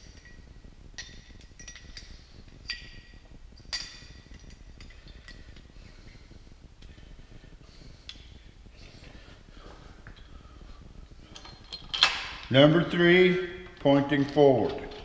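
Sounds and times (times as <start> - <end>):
light metallic clinks: 0.0 - 5.7.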